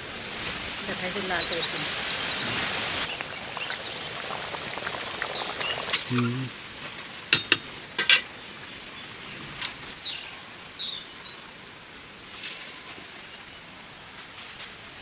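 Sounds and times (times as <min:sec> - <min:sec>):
curry sizzling in a pan: 0:00.7 - 0:08.9.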